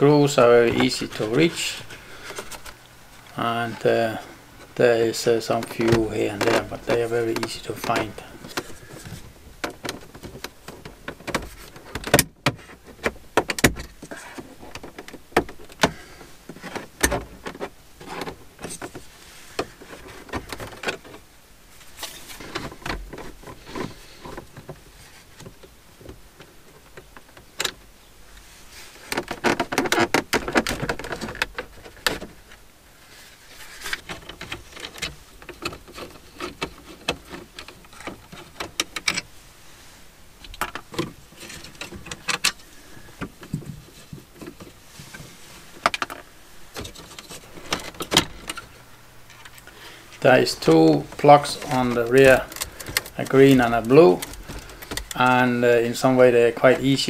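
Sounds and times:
scraping and rubbing: 0:28.4 - 0:40.1, 0:40.8 - 0:57.0.

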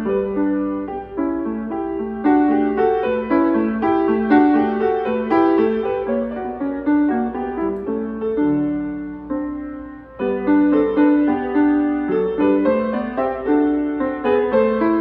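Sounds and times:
grand piano playing: 0:00.0 - 0:15.0.

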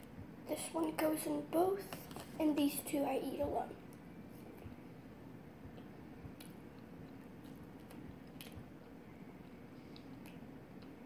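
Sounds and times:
low room hum: 0:00.0 - 0:11.0
faint chewing: 0:05.7 - 0:11.0
soft mouth clicks: 0:09.9 - 0:11.0.

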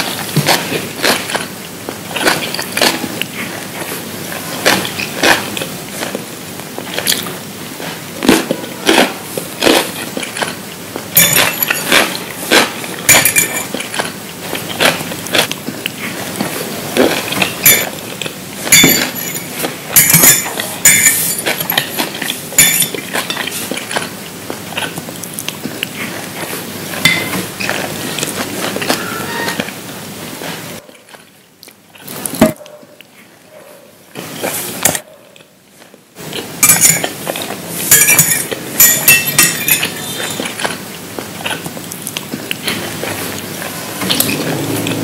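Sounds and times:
crisp crunching and chewing: 0:00.0 - 0:29.0, 0:39.8 - 0:45.0.

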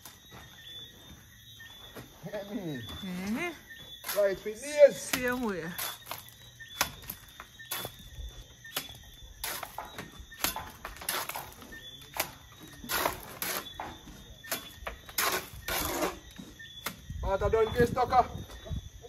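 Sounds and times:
trowel scraping and tapping render: 0:08.7 - 0:17.0.

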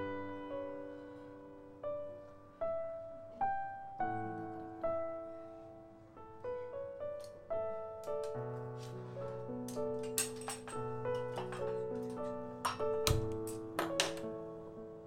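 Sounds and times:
slow piano melody: 0:00.0 - 0:15.0.

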